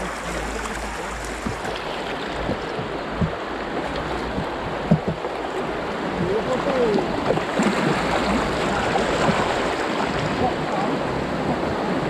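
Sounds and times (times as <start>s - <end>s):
river water rushing and gurgling: 0.0s - 12.0s
water splashes: 0.0s - 12.0s.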